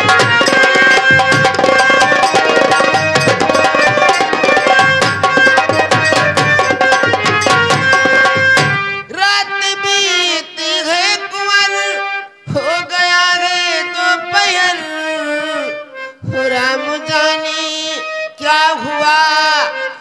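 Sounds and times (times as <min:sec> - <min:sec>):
fast hand-drum strokes: 0:00.0 - 0:09.0
held instrumental melody: 0:00.0 - 0:10.0.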